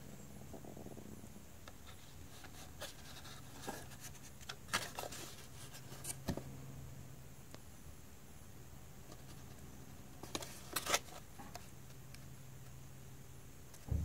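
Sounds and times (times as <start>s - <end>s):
plastic and cardboard rustling: 1.8s - 6.5s, 10.2s - 11.8s.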